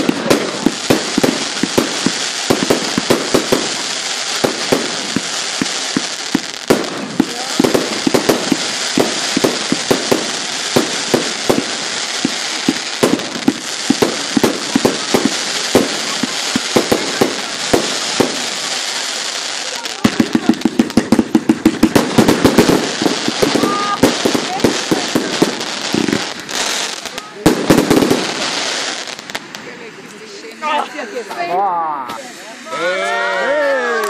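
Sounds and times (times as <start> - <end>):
fireworks bangs and pops: 0.0 - 32.4
fireworks crackling hiss: 0.0 - 34.0.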